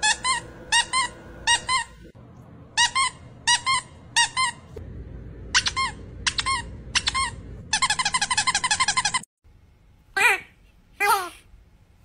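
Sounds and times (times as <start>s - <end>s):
squeaky toy squeaks: 0.0s - 1.9s, 2.8s - 4.7s, 5.6s - 9.3s.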